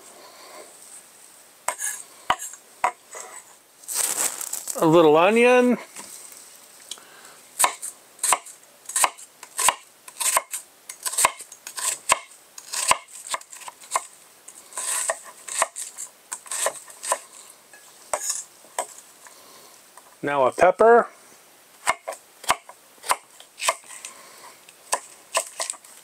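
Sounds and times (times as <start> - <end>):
knife chopping onion on board: 14.8 - 15.9, 16.5 - 17.2, 24.9 - 25.8.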